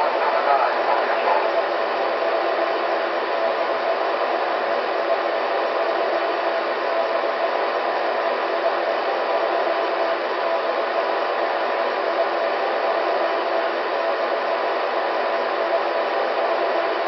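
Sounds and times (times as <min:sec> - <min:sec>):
faint steady tones: 0:00.0 - 0:01.7.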